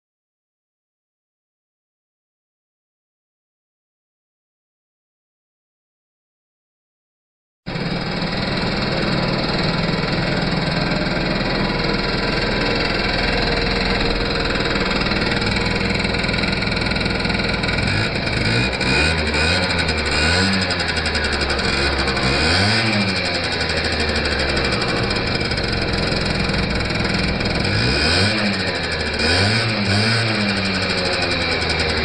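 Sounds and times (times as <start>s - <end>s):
scooter engine revving: 7.7s - 32.0s.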